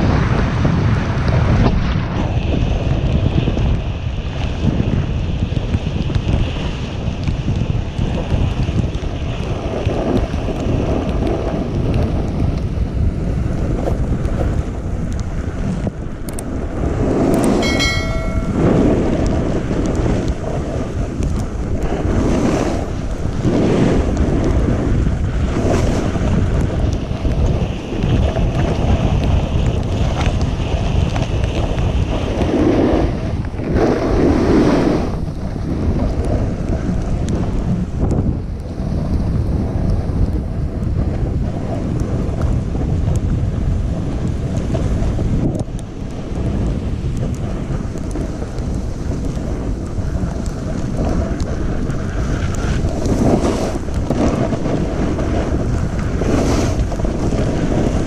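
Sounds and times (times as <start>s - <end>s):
wind buffeting microphone: 0.0s - 58.0s
snowboard swishing through snow: 16.5s - 17.6s, 21.8s - 37.7s, 47.5s - 58.0s
high-pitched tone: 17.6s - 18.9s.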